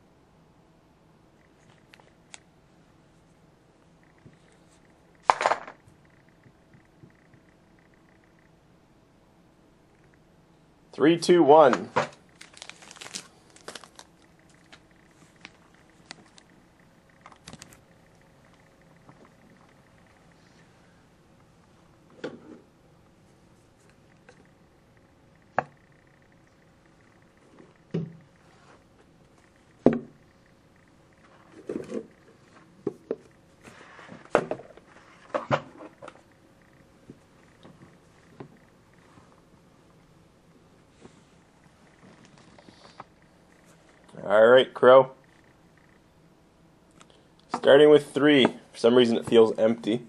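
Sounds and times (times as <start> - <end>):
faint crinkling: 12.1 - 21.9, 40.7 - 44.2.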